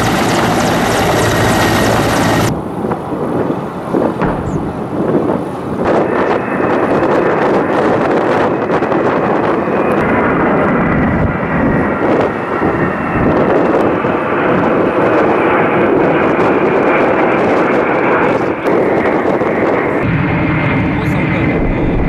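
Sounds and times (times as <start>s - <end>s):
aircraft engines rumbling: 0.0s - 22.0s.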